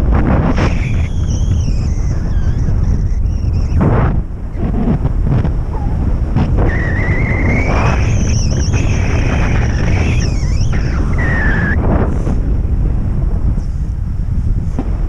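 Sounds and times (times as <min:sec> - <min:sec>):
wind buffeting microphone: 0:00.0 - 0:15.0
thin high whistling tone: 0:00.5 - 0:03.8, 0:06.7 - 0:11.8.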